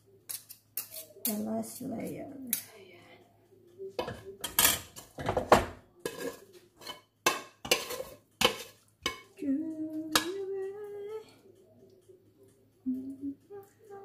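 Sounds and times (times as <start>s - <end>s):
cutlery clinking on dishes: 0.3s - 1.4s, 4.0s - 9.4s, 10.1s - 10.5s
woman humming: 12.9s - 14.0s.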